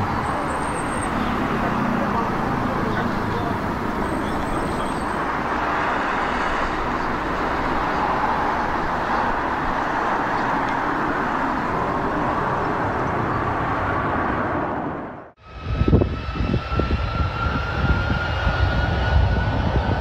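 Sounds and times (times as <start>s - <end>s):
jet airliner flying overhead: 0.0s - 20.0s.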